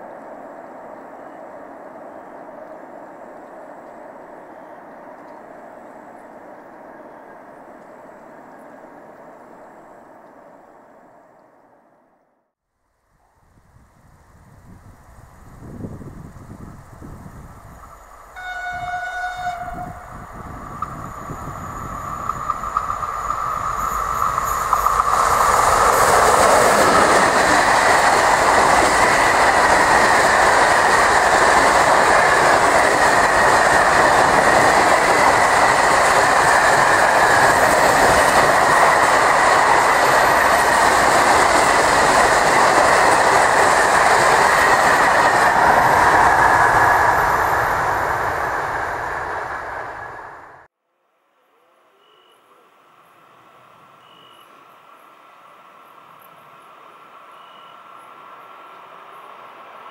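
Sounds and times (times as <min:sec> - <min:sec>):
train wheels rattling on rails: 0:15.5 - 0:50.6
train horn blast: 0:18.3 - 0:20.1.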